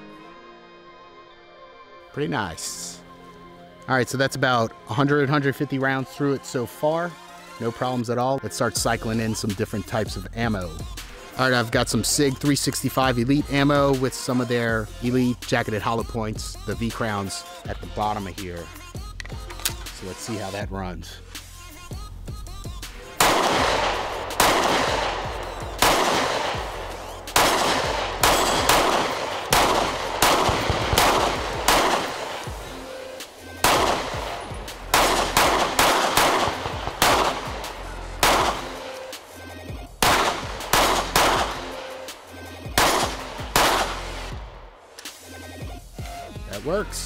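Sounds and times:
pistol shots: 22.9s - 39.4s, 40.0s - 44.8s.

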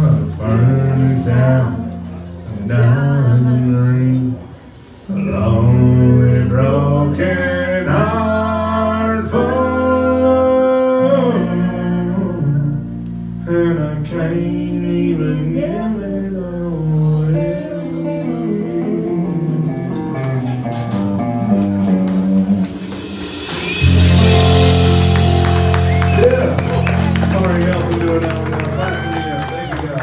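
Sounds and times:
man singing: 0.0s - 20.2s
country band playing: 0.0s - 30.0s.

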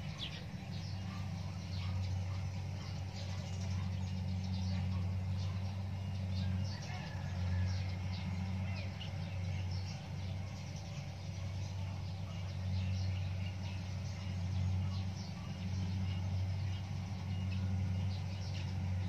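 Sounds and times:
birds chirping: 0.0s - 19.0s
combine harvester engine drone: 0.0s - 19.0s.

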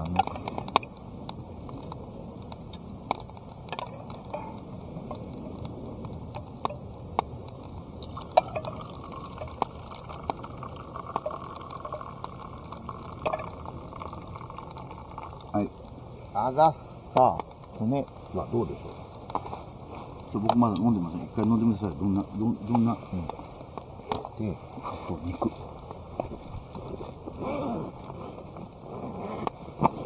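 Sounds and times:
vessels clinking: 8.0s - 15.6s
liquid pouring: 8.0s - 15.8s.

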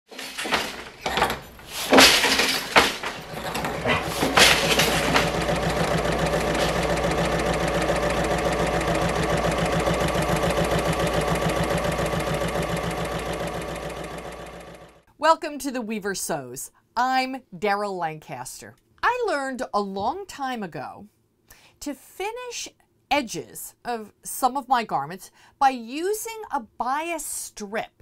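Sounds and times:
wooden loom knocks: 0.1s - 14.6s
sewing machine stitching: 0.1s - 15.0s.

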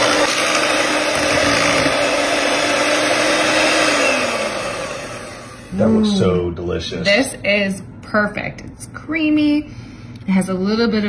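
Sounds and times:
electric hand mixer whirring: 0.0s - 5.9s.

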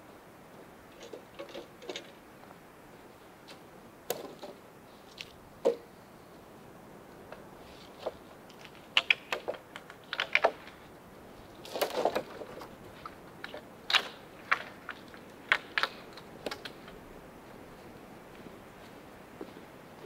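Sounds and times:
rustling: 7.4s - 19.7s
wood clicks and knocks: 8.0s - 10.8s, 11.7s - 12.7s.

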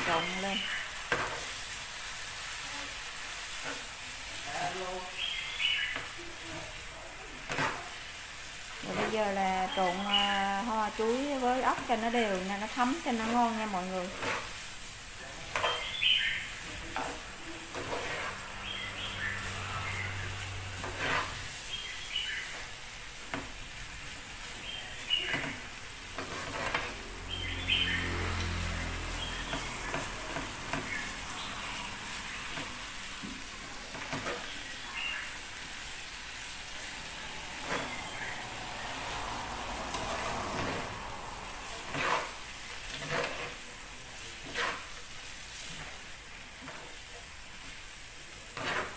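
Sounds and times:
utensils clacking against pan: 0.0s - 1.6s, 7.4s - 8.1s, 15.3s - 16.0s, 16.8s - 21.6s, 24.4s - 27.3s, 28.3s - 34.7s, 36.0s - 38.2s, 41.7s - 47.4s, 48.4s - 48.9s
frying pan sizzling: 0.0s - 48.9s.

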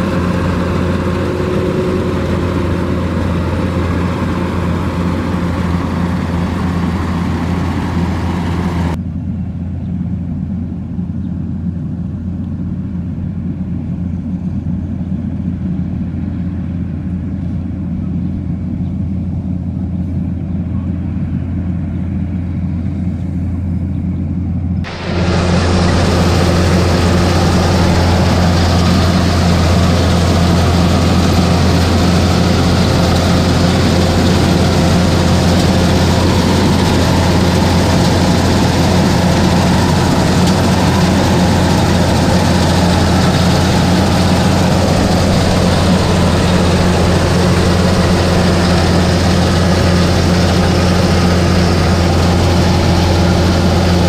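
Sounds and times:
combine harvester engine hum: 0.0s - 54.0s.

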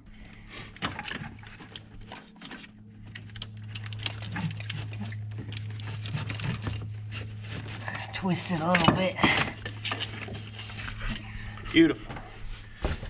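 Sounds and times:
steady low hum: 0.0s - 13.0s
plastic and metal parts rattling: 0.1s - 12.2s.

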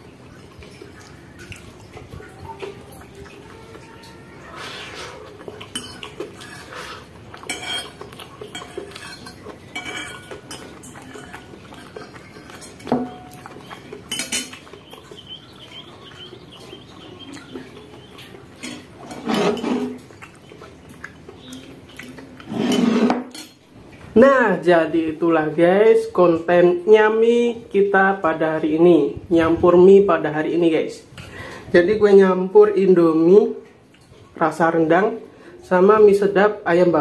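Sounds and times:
cutlery scraping ceramic bowl: 4.7s - 14.6s, 18.6s - 20.0s, 22.4s - 23.6s
bowl clattering: 5.3s - 20.4s, 22.4s - 23.6s.

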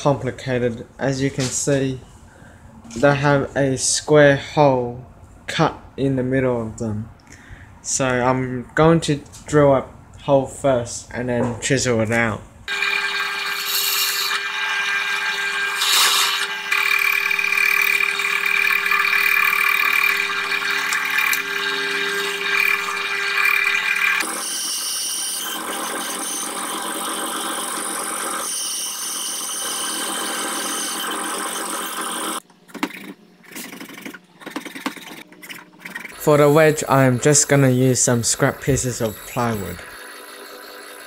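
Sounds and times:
drill press motor whine: 12.7s - 32.4s, 36.0s - 41.0s
drill bit squealing in wood: 15.7s - 24.6s, 34.6s - 41.0s.

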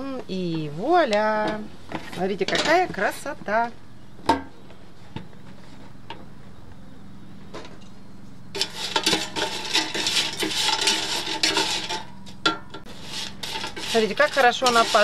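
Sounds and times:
spatula scraping fries in basket: 8.6s - 15.0s.

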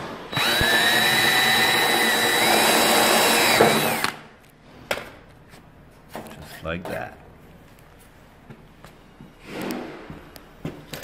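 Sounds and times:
power drill boring metal: 0.3s - 4.1s.

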